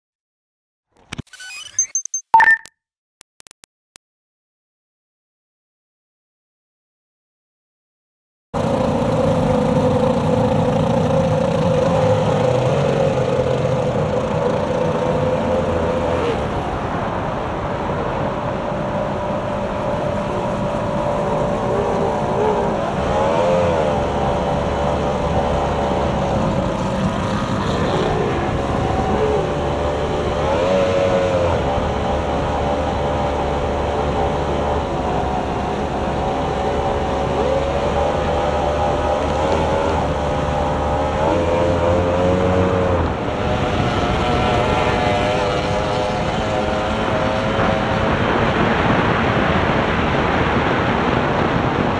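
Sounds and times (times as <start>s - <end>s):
boat outboard engine running: 8.6s - 51.9s
wind and water rushing: 15.0s - 51.9s.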